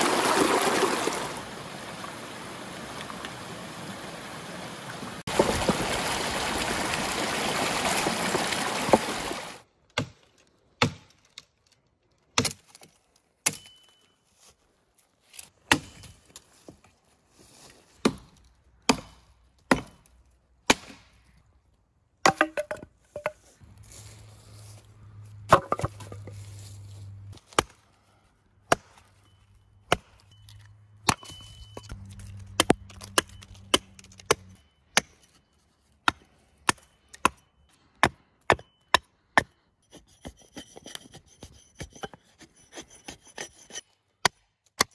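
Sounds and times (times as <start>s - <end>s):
stream water rushing: 0.0s - 9.6s
hatchet chopping wood: 9.9s - 10.2s, 10.8s - 11.2s, 12.4s - 12.8s, 13.4s - 13.8s, 15.7s - 16.1s, 18.0s - 21.1s, 22.2s - 23.3s, 25.5s - 26.1s, 36.0s - 37.4s, 38.0s - 44.9s.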